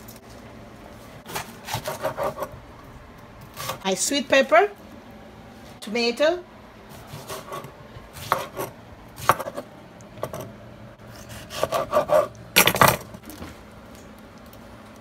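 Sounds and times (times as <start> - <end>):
knife cutting on wooden board: 1.3 - 2.5, 7.0 - 9.6, 11.2 - 12.3.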